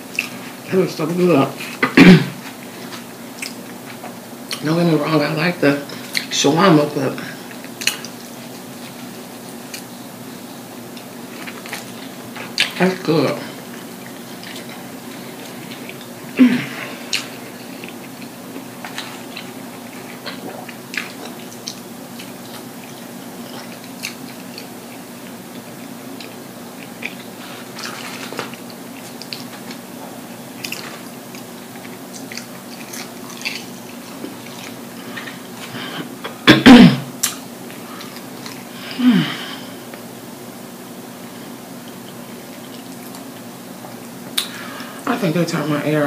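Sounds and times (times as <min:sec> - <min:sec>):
steady low hum: 0:00.0 - 0:46.0
chewing and lip-smacking: 0:03.4 - 0:03.7, 0:17.0 - 0:29.8, 0:30.6 - 0:35.4, 0:41.8 - 0:43.4.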